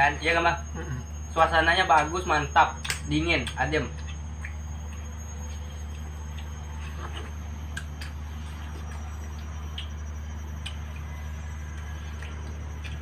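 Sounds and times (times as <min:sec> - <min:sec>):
low background hum: 0:00.0 - 0:13.0
chewing watermelon: 0:02.8 - 0:13.0.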